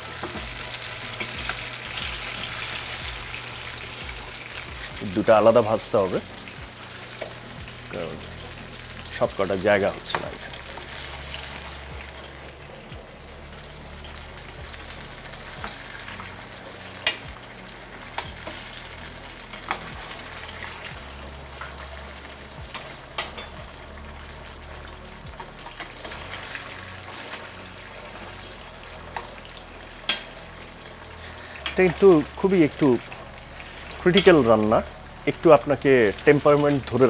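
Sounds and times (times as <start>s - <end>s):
potatoes sizzling in oil: 0.0s - 37.0s
tongs clicking against pan: 30.0s - 30.3s.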